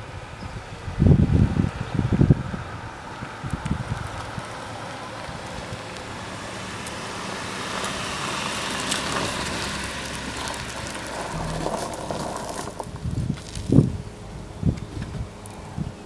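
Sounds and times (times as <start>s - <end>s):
car engine passing: 6.3s - 13.6s
tyre noise: 8.8s - 14.0s.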